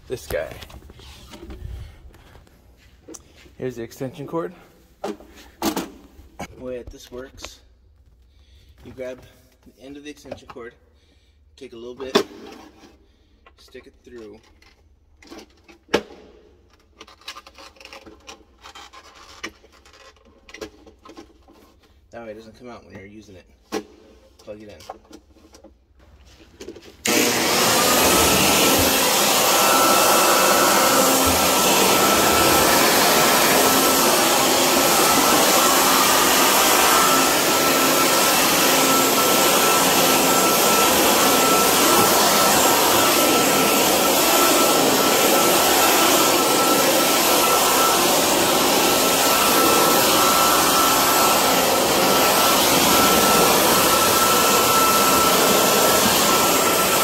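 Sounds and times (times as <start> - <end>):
electric leaf blower running: 27.0 - 57.0.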